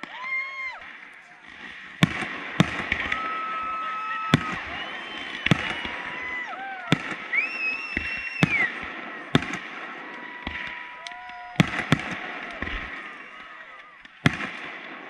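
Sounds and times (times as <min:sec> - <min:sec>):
fireworks crackle: 0:00.0 - 0:15.0
fireworks shells bursting: 0:00.0 - 0:15.0
high whistling fireworks: 0:00.0 - 0:15.0.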